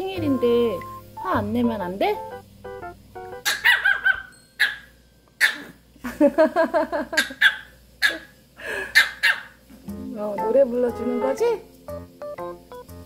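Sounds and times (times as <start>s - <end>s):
small dog yapping: 3.4s - 5.8s, 7.2s - 9.6s.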